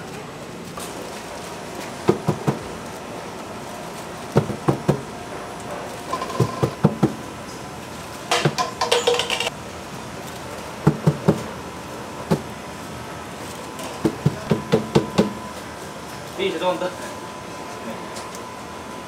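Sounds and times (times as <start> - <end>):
kitchen utensils clattering: 8.3 - 9.5.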